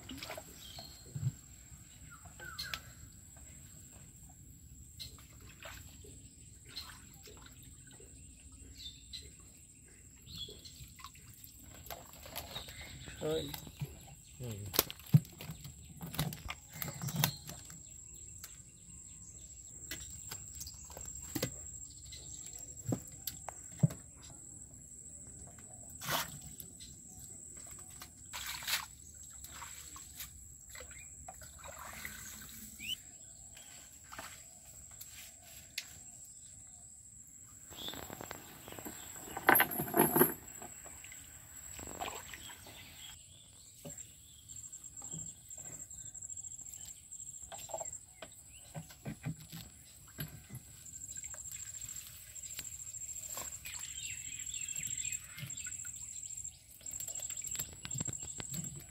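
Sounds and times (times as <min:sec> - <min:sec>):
birds chirping: 0:32.5 - 0:33.1, 0:37.6 - 0:46.5.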